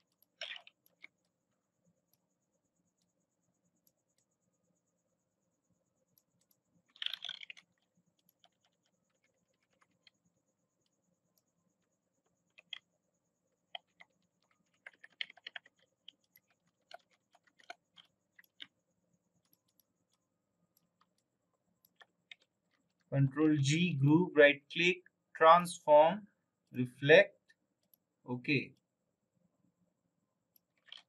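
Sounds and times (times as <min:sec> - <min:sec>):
keyboard and mouse clicks: 0:00.0 - 0:01.3, 0:06.2 - 0:10.2, 0:12.4 - 0:12.9, 0:13.6 - 0:18.8, 0:19.4 - 0:23.1, 0:30.6 - 0:31.0.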